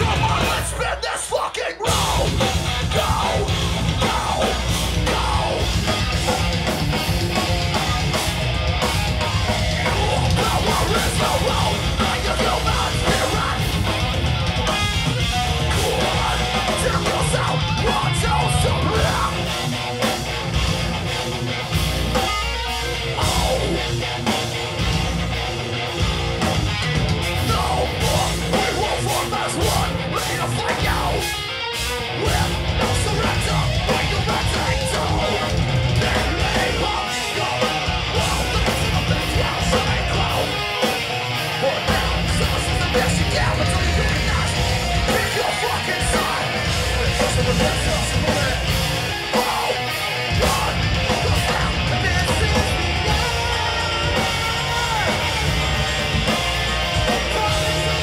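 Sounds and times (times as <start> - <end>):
metal band playing live: 0.0 - 58.0
vocalist shouting: 41.6 - 55.5.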